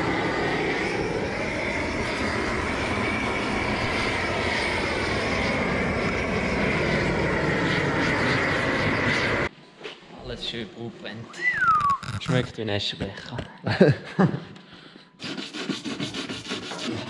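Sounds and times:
propane torch burning: 0.0 - 9.5.

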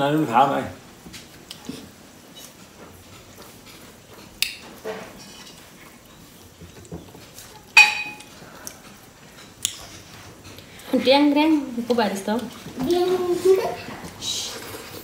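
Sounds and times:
metal plates clinking: 7.8 - 8.3.

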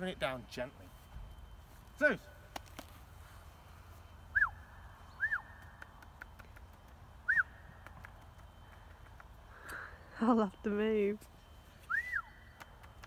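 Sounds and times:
person whistling: 4.3 - 4.6, 5.2 - 5.5, 7.2 - 7.5, 11.8 - 12.4.

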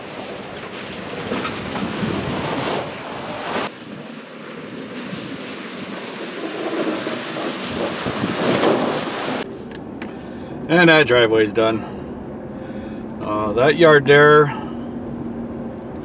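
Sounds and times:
plow blade scraping snow: 0.0 - 9.7.

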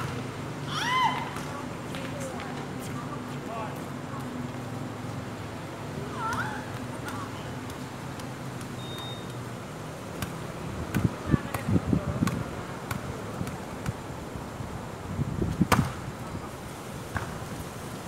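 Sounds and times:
volleyball being hit: 15.7 - 16.0.

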